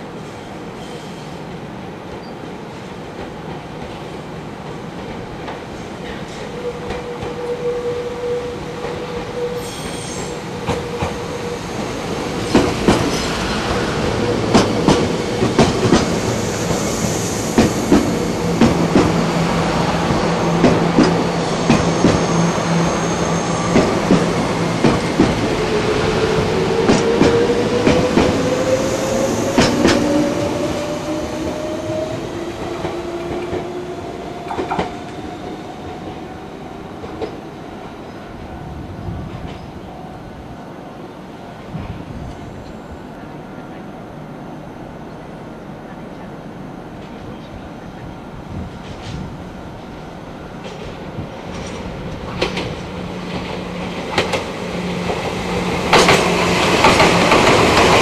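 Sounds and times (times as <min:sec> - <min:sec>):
steady train hum: 0:00.0 - 0:58.0
train wheels clacking over rail joints: 0:12.4 - 0:13.3, 0:14.5 - 0:16.2, 0:50.6 - 0:58.0.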